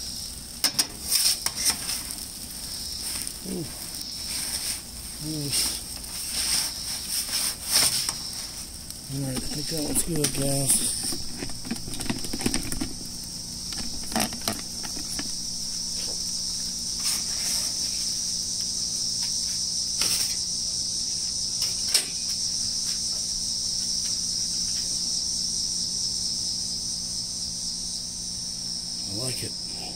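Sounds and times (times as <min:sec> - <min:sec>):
insects chirring: 0:00.0 - 0:29.9
knocks and clatters: 0:09.3 - 0:13.0.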